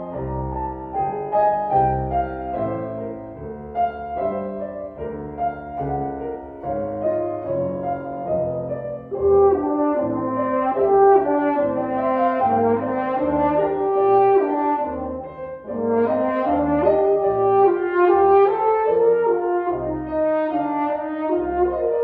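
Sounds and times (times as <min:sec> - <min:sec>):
piano accompaniment: 0:00.0 - 0:22.0
french horn melody: 0:06.2 - 0:22.0.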